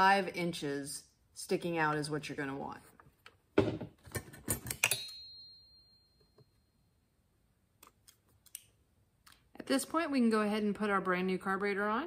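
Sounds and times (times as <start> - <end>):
metal tools clattering on workbench: 3.6 - 5.2
ringing metallic clink: 4.6 - 6.6.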